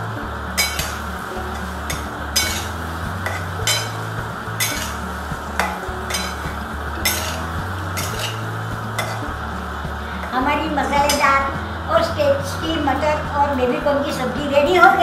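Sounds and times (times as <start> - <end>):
soft sizzle: 0.0 - 15.0
metal spatula scraping pan: 0.6 - 11.5.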